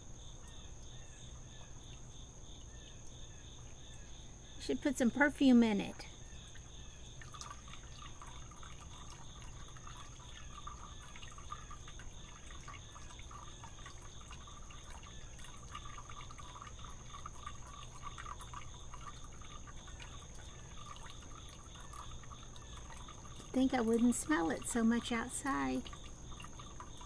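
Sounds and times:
short insect chirps: 0:00.0 - 0:27.0.

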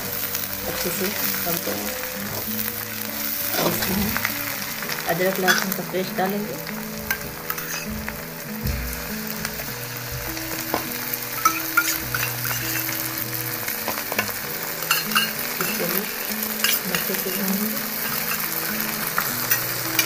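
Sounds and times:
onion sizzling in hot oil: 0:00.0 - 0:20.0
spatula scraping and tapping pan: 0:06.7 - 0:13.1, 0:13.8 - 0:15.9.

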